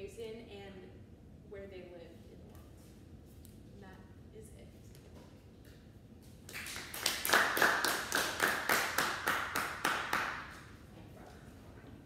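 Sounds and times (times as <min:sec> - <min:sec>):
small group clapping: 0:06.5 - 0:10.7.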